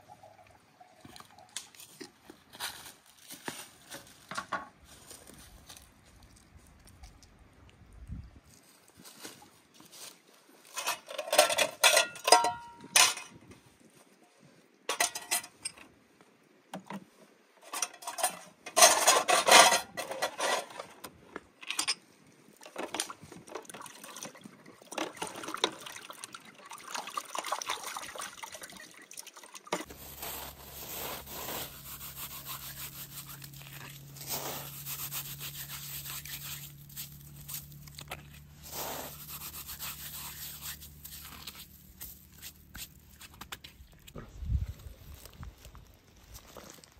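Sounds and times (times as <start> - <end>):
metal plates clattering: 10.8 - 13.4, 14.9 - 15.6, 17.7 - 20.9
water splashing: 23.6 - 41.2
hands rubbing snow: 29.9 - 43.3.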